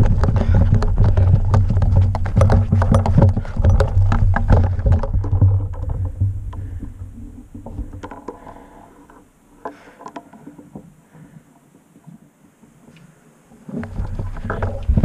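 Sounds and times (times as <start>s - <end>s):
running footfalls: 0.0s - 6.9s
faint clicks and rustles: 0.0s - 15.0s.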